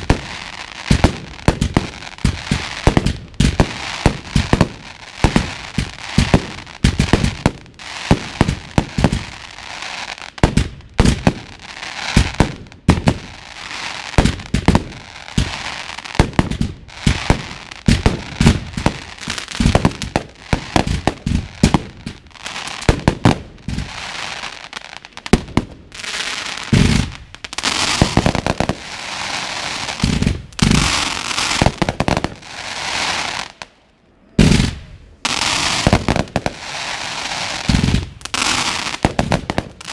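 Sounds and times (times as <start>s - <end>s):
firework crackling: 0.0s - 33.8s, 34.4s - 39.9s.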